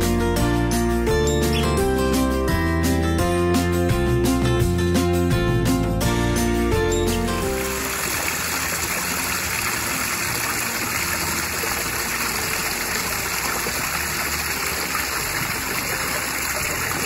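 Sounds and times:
waterfall splashing over rocks: 7.4s - 17.0s.

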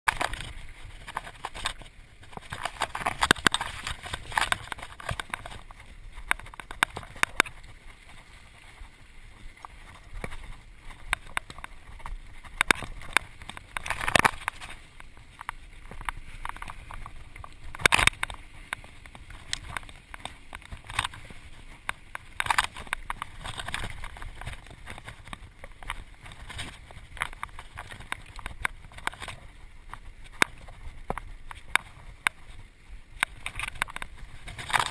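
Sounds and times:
bike clicks and rattles: 0.1s - 34.9s
bike tyre and wind noise: 0.1s - 34.9s.

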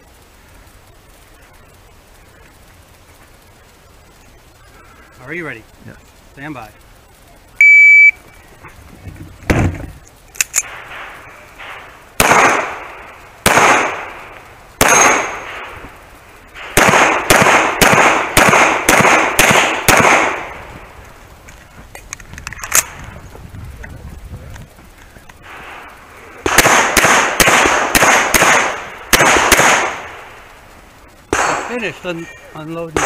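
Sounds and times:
shot timer beep: 7.6s - 8.2s.

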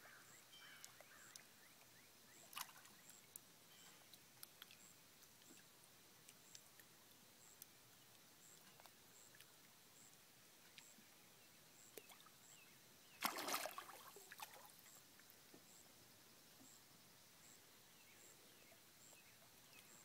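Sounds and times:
water drips: 0.7s - 9.6s, 13.2s - 15.3s
fish splashing at water surface: 13.2s - 14.8s.

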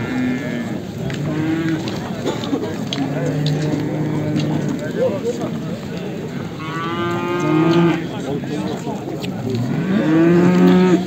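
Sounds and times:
cattle mooing: 0.0s - 1.9s, 3.0s - 4.9s, 6.6s - 8.0s, 9.6s - 11.0s.

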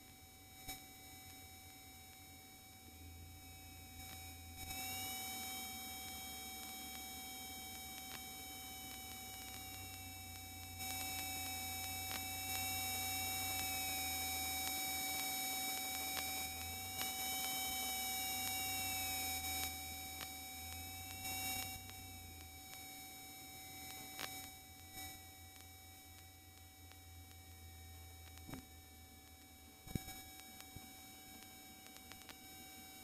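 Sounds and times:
electrical whine: 0.0s - 33.0s.

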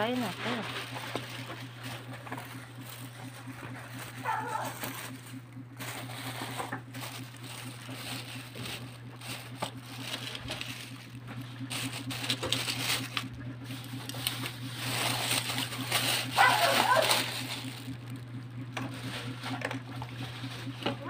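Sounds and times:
plastic bag crinkling: 0.0s - 21.0s
steady low hum: 0.0s - 21.0s.

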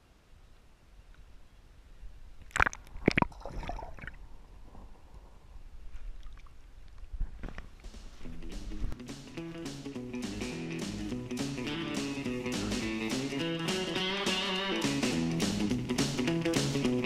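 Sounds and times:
water splashes: 2.4s - 5.0s.

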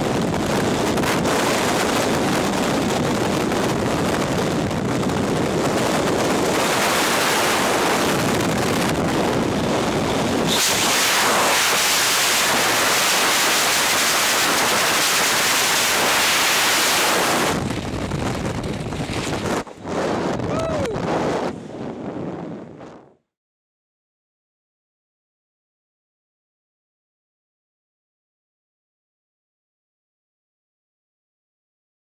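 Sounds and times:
wind rushing over microphone: 0.0s - 23.2s.

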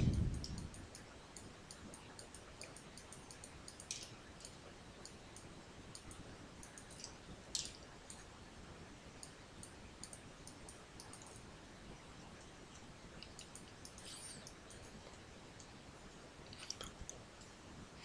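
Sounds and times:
sharp clicks: 0.0s - 8.2s, 9.2s - 11.4s.

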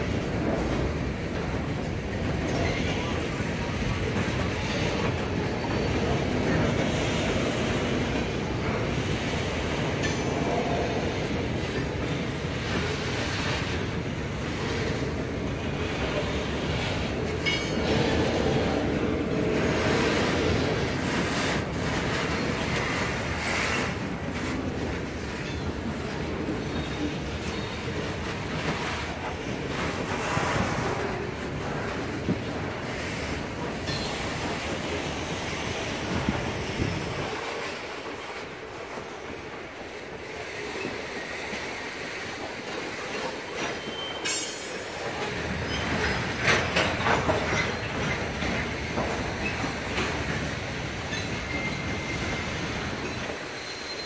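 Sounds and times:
train wheels on rails: 0.0s - 54.0s
high wheel squeal: 51.0s - 54.0s.

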